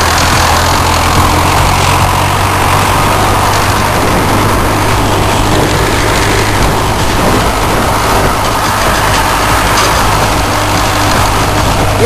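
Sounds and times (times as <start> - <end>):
tractor engine humming: 0.0 - 12.0
wind and driving noise: 0.0 - 12.0.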